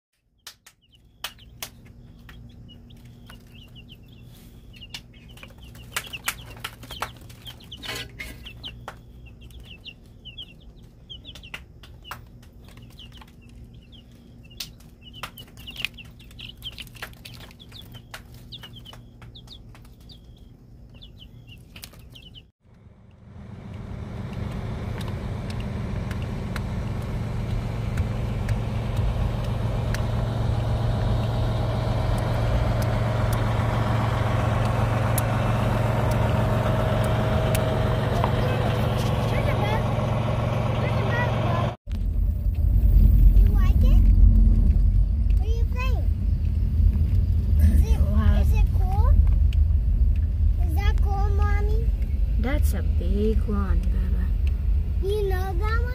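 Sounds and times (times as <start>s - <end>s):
chicks peeping: 0.4s - 22.5s, 28.0s - 40.0s
bus engine droning: 1.0s - 55.9s.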